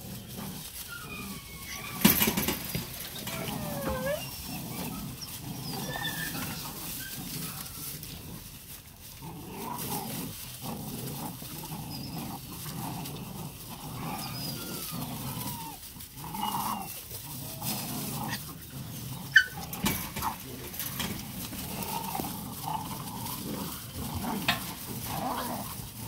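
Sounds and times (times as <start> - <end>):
dry leaves rustling: 0.0 - 26.0
puppies growling and whining: 0.0 - 26.0
puppy yelping: 0.8 - 7.2, 14.1 - 17.0, 19.3 - 19.7.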